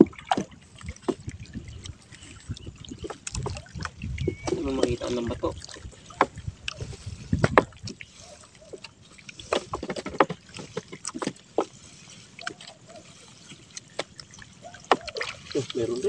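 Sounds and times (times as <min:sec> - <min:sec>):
water splashing and dripping: 0:00.0 - 0:16.0
wet net hauled into boat: 0:00.0 - 0:16.0
knocks against boat hull: 0:07.4 - 0:07.7.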